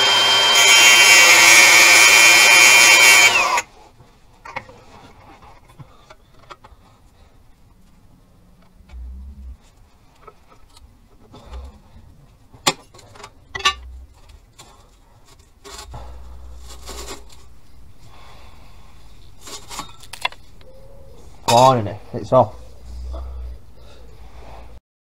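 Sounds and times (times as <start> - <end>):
metal rubbing and scraping: 8.6 - 12.2, 12.8 - 24.8
metal clanks: 12.6 - 14.8.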